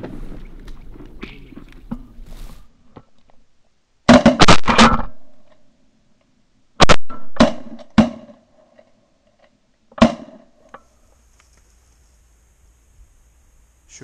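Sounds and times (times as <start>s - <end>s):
shotguns firing: 4.1s - 5.3s.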